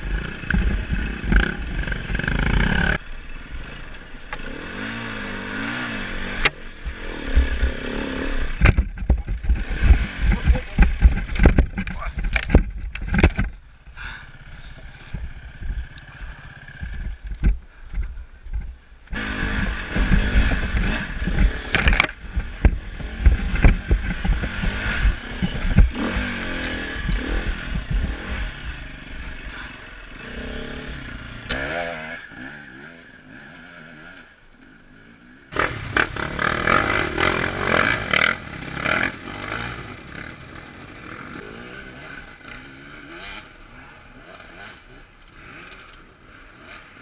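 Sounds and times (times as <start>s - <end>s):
dirt bike engine revving: 0.0s - 17.5s, 19.1s - 47.0s
rumble and knocks from riding: 0.1s - 3.0s, 8.4s - 13.7s, 14.6s - 28.5s.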